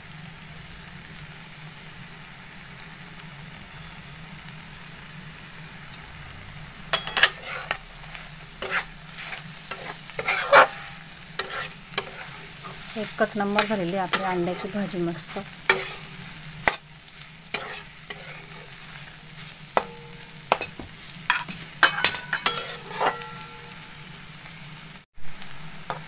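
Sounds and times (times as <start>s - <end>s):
eggs sizzling in a pan: 0.0s - 26.0s
metal spatula scraping pan: 6.9s - 24.1s.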